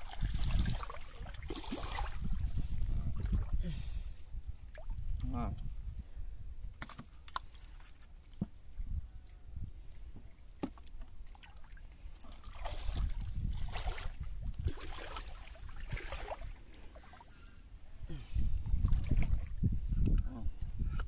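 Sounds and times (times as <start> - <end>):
shallow water sloshing and splashing: 0.0 - 3.6, 10.6 - 17.5, 18.6 - 19.6.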